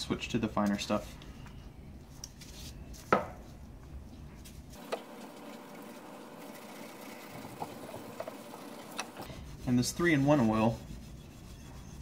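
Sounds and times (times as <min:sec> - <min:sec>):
steel wool scrubbing metal: 0:04.8 - 0:12.0.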